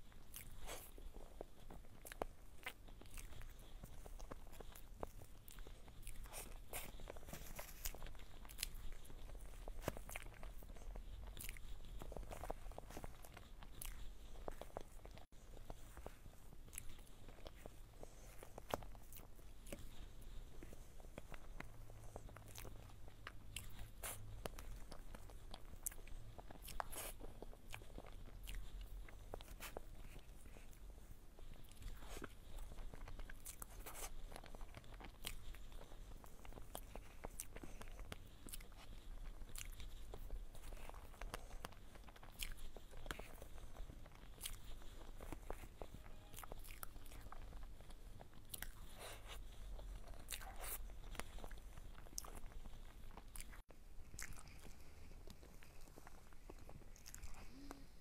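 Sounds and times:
wet chewing and lip smacks: 0.0 - 58.0.

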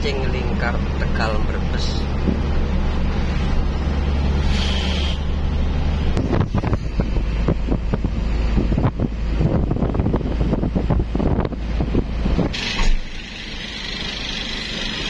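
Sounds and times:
road noise: 0.0 - 15.0
truck engine drone: 0.0 - 15.0
wind buffeting microphone: 5.4 - 12.6.

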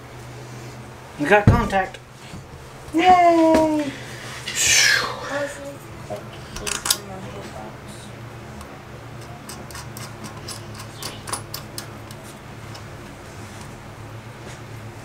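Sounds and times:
steady low hum: 0.0 - 15.0
metallic clicks of nut turning: 9.2 - 12.8.

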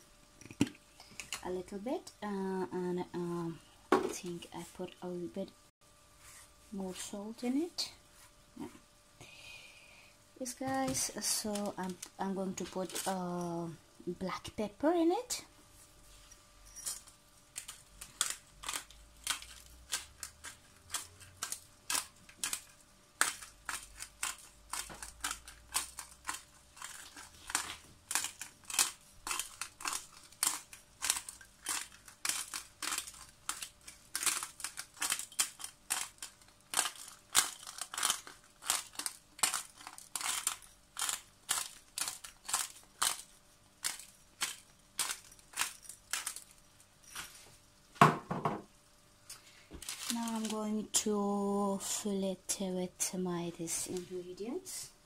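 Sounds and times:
pepper grinder crunching clicks: 17.5 - 46.6.

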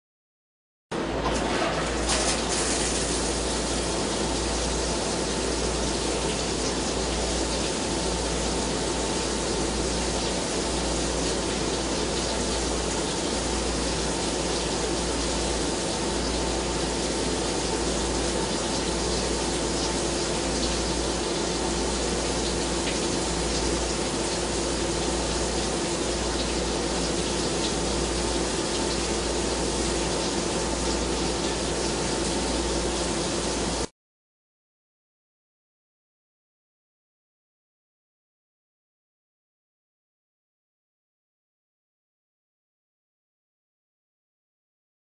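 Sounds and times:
low machine hum: 0.9 - 33.9
coolant spraying: 1.8 - 7.9.

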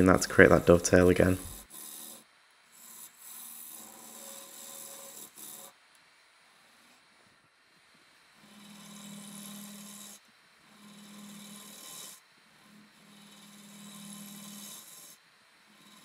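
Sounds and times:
chisel scraping spinning wood: 0.0 - 2.2, 2.8 - 5.7, 8.4 - 16.0
low lathe hum: 0.0 - 2.2.

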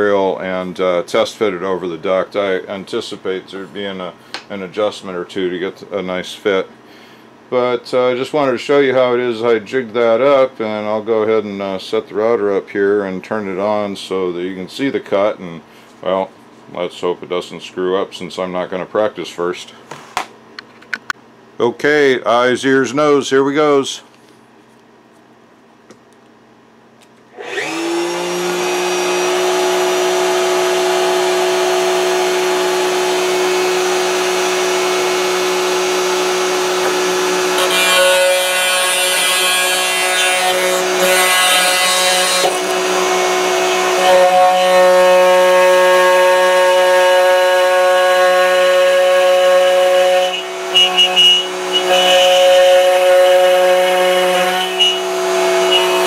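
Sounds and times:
router bit cutting hardboard: 27.4 - 56.0
router motor whine: 27.4 - 56.0.

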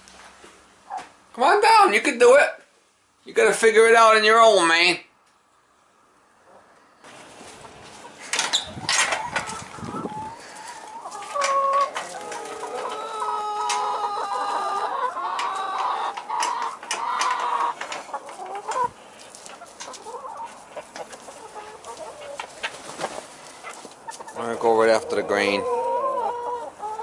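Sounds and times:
chickens clucking and squawking: 5.5 - 27.0.

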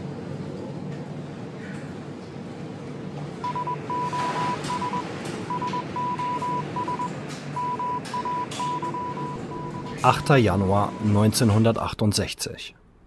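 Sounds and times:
morse code beeping tone: 3.4 - 11.4
low steady rumble: 4.8 - 13.0.

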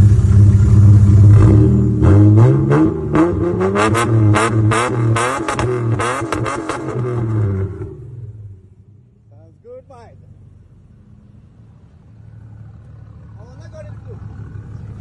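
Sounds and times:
engine revving: 0.0 - 8.8.

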